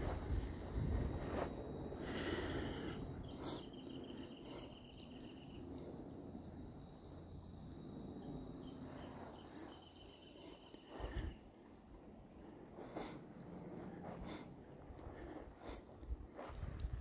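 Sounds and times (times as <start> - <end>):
insect trilling: 2.0 - 11.5.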